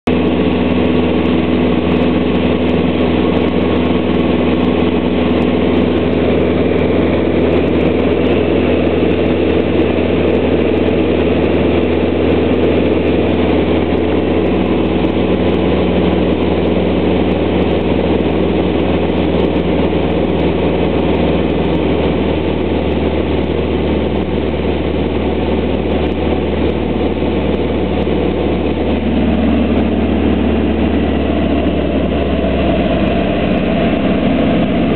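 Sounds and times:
propeller aircraft engine droning: 0.0 - 34.9.

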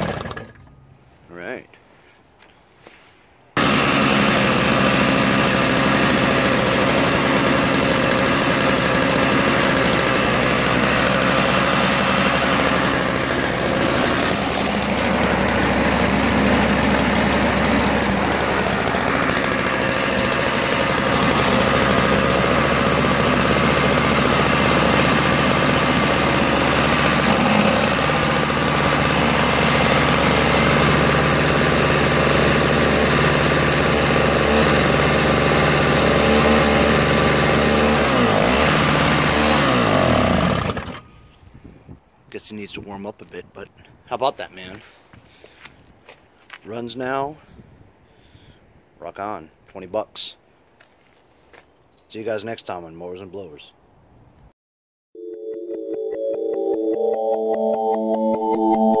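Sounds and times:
two-stroke engine running: 0.0 - 0.8, 3.6 - 41.2.

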